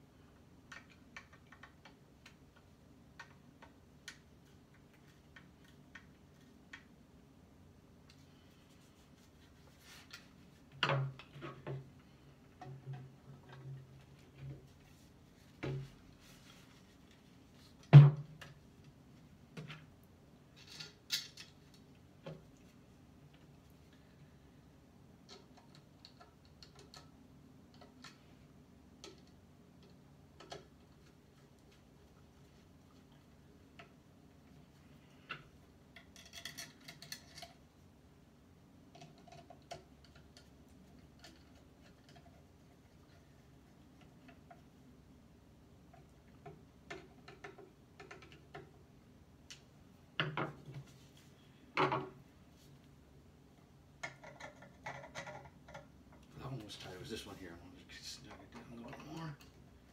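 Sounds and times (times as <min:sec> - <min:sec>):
small tools clattering on wood: 0:36.0 - 0:37.6.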